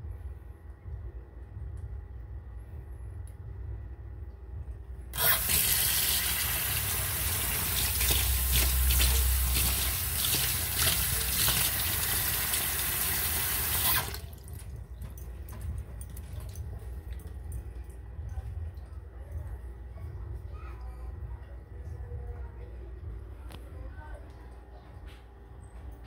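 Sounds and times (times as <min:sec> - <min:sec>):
tap water running into sink: 0:05.2 - 0:14.6.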